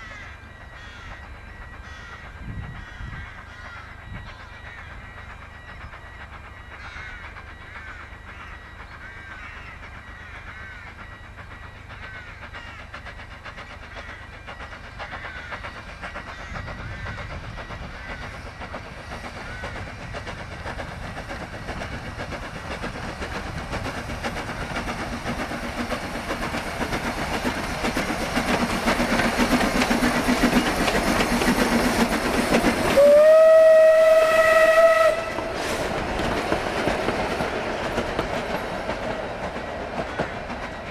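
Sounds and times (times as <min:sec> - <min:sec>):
steam train running: 0:00.0 - 0:40.9
steam whistle blast: 0:32.9 - 0:35.9.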